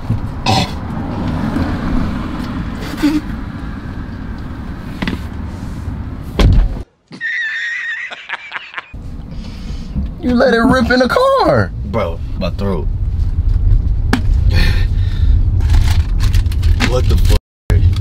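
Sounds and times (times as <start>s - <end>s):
car door shutting with thud: 6.4s - 6.8s
low rumble: 11.6s - 18.0s.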